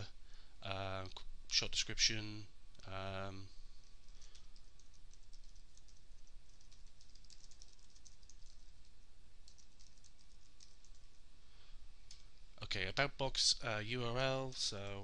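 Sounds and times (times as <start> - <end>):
computer keyboard typing: 4.1 - 11.2.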